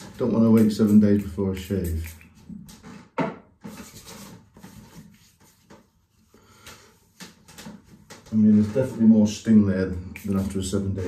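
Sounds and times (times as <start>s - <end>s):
hand rubbing skin: 0.0s - 2.4s.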